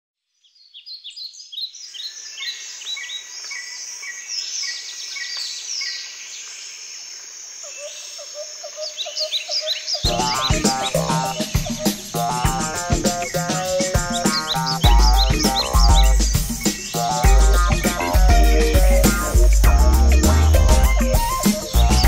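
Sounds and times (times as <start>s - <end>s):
birds chirping and twittering: 0.4s - 7.0s, 7.6s - 22.0s
high insect buzz: 8.4s - 22.0s
music with a beat: 10.1s - 22.0s.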